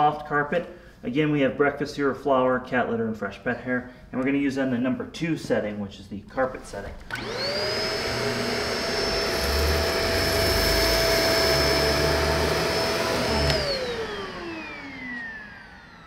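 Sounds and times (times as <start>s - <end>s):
upright vacuum running on carpet: 7.1s - 16.0s
vacuum motor winding down: 7.1s - 16.0s.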